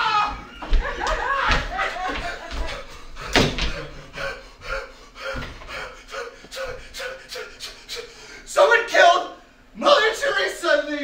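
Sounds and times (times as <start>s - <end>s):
man breathing rapidly: 2.2s - 8.5s
man gasping: 2.8s - 8.5s.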